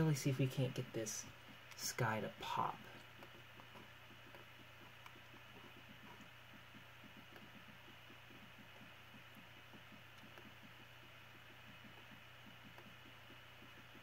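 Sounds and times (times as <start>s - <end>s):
low hum: 0.0s - 14.0s
computer mouse clicks: 3.0s - 14.0s.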